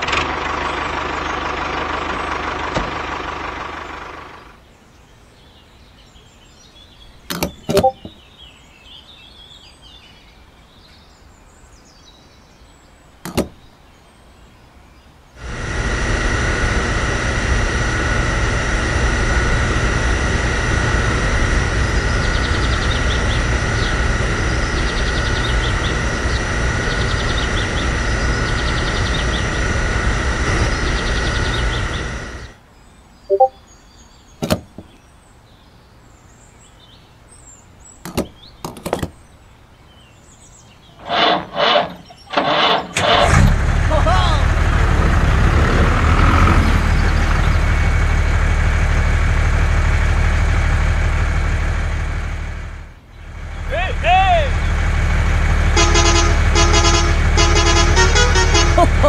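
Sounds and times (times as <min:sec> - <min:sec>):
sharp clicks and knocks: 0:07.3 - 0:08.2, 0:13.2 - 0:13.6, 0:34.4 - 0:35.0, 0:38.0 - 0:39.1
mechanical drone with whine: 0:15.4 - 0:32.6, 0:53.4 - 0:59.0.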